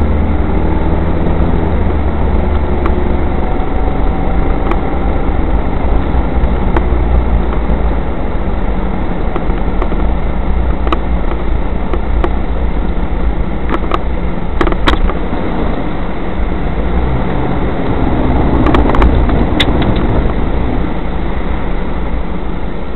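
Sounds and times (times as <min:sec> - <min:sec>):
car engine and tyre rumble: 0:00.0 - 0:22.9
water spraying over windscreen: 0:00.1 - 0:22.9
knocks and ticks in car cabin: 0:04.3 - 0:07.9, 0:09.2 - 0:15.2, 0:18.6 - 0:20.4.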